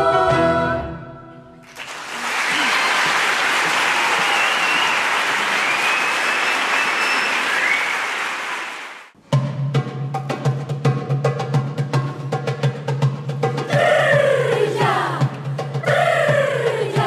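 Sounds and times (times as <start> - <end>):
audience applause: 1.6 - 9.1
high calls from audience: 1.9 - 9.0
choir holding a chord: 13.7 - 17.0.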